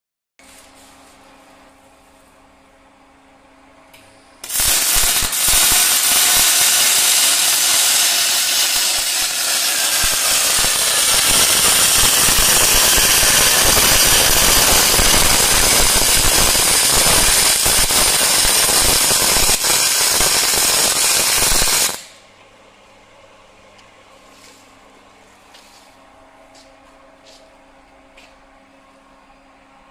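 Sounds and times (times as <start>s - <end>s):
welding arc crackling hiss: 4.4s - 22.2s.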